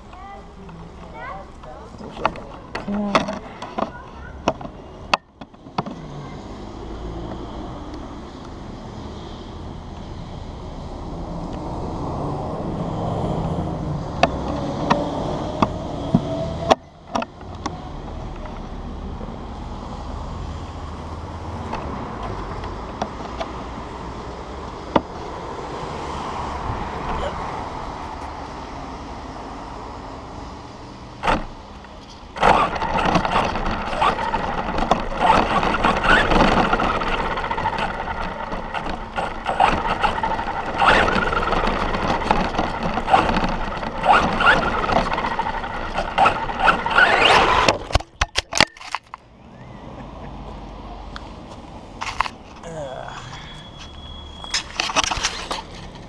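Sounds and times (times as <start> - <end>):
sharp clicks and knocks: 0.0 - 6.0, 14.2 - 18.7, 21.6 - 23.6, 24.8 - 25.2, 31.2 - 49.2
cars passing: 0.0 - 56.0.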